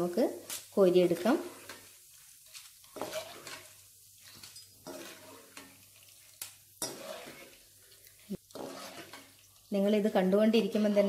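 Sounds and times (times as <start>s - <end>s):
faint frying sizzle: 0.0s - 11.0s
metal spatula stirring in wok: 0.6s - 11.0s
scrapes and clinks against pan: 6.8s - 7.6s.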